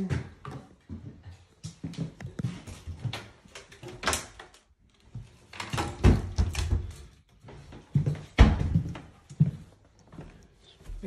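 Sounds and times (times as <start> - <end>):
cabinet door knocks and rustling: 8.4 - 8.9.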